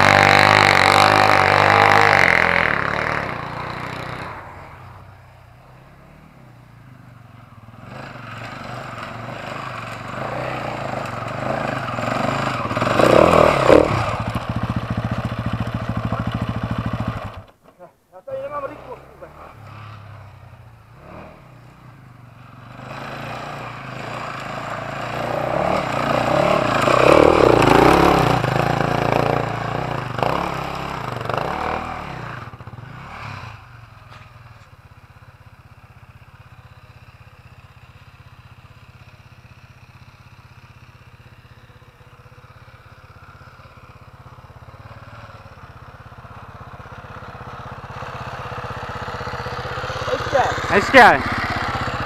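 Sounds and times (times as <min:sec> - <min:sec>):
pit bike engine revving: 0:00.0 - 0:04.8, 0:07.7 - 0:17.5, 0:22.5 - 0:33.8, 0:43.6 - 0:52.0
dirt bike engine at low revs: 0:00.0 - 0:17.6, 0:18.4 - 0:52.0.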